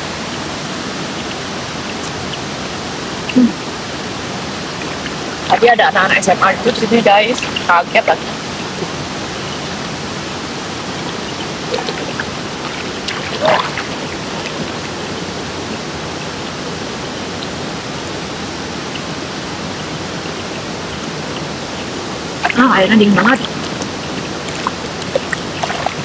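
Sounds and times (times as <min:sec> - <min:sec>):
flowing water rushing: 0:00.0 - 0:26.0
person vocal sound: 0:03.3 - 0:03.7.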